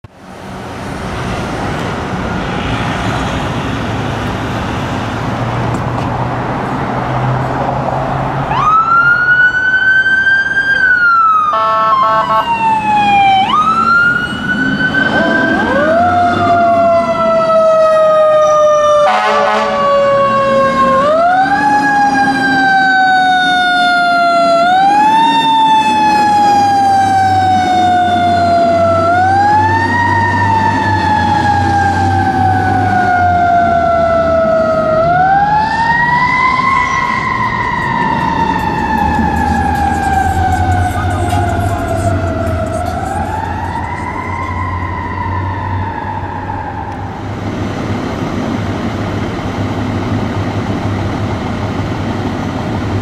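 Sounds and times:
traffic and engine rumble: 0:00.0 - 0:53.0
fire engine sirens wailing: 0:08.2 - 0:53.0
lower pitched siren: 0:08.4 - 0:47.5
short horn blasts: 0:11.6 - 0:12.5, 0:19.1 - 0:19.8.

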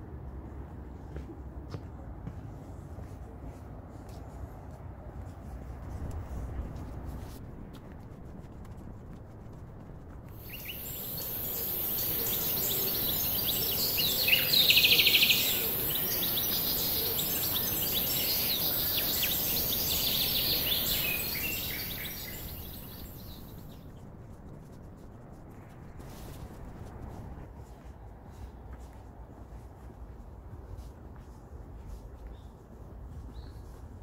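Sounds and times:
high-pitched insect hiss: 0:10.4 - 0:23.2
loud rapid bird trill: 0:10.4 - 0:23.5
birds chirping and calling: 0:10.4 - 0:23.6.

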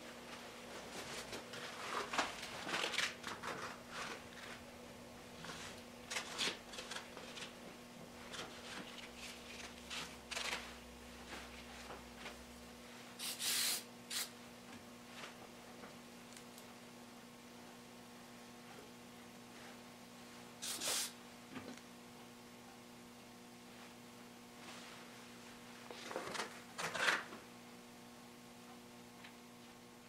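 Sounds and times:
low electrical hum: 0:00.0 - 0:30.0
short hissing bursts: 0:13.2 - 0:14.4, 0:20.6 - 0:21.2.

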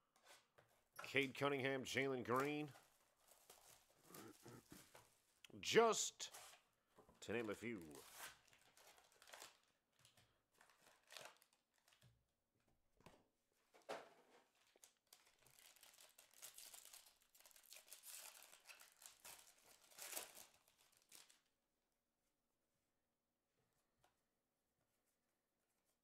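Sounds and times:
foil wrappers crinkling and tearing: 0:07.8 - 0:12.0, 0:14.5 - 0:21.5.

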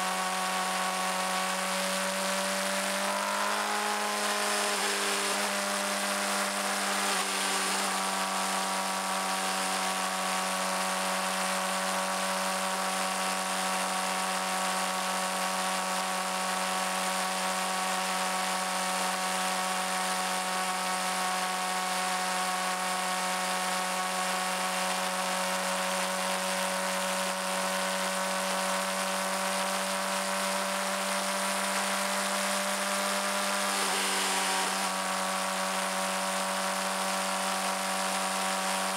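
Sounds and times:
motorcycle engine cruising: 0:01.9 - 0:10.8, 0:30.6 - 0:35.6.

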